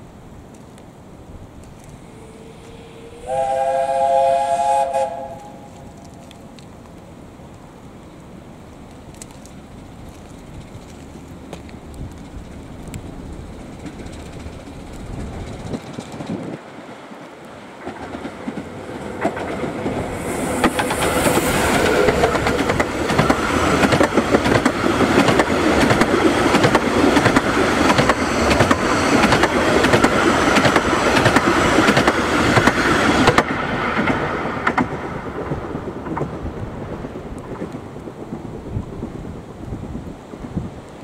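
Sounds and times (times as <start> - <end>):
steam train rumbling: 1.2 - 41.0
wheels clicking over rail joints: 5.6 - 38.5.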